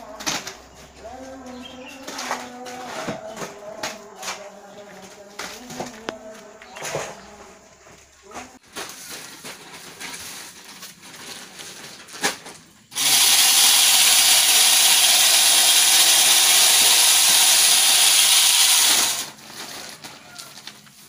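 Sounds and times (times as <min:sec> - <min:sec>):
loud hissing machine noise: 0:12.9 - 0:19.4.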